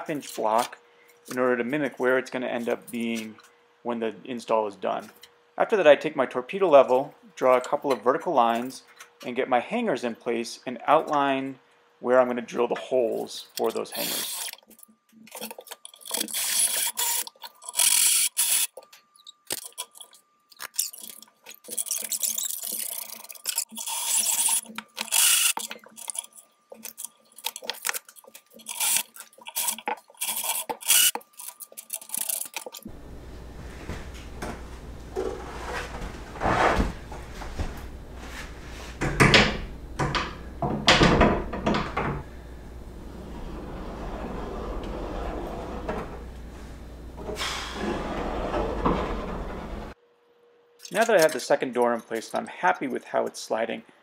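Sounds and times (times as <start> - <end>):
cordless drill boring into wood: 14.0 - 14.6, 16.1 - 18.7, 23.8 - 25.6, 28.7 - 29.0, 30.3 - 31.2
barn doors rolling on rails: 42.9 - 50.0.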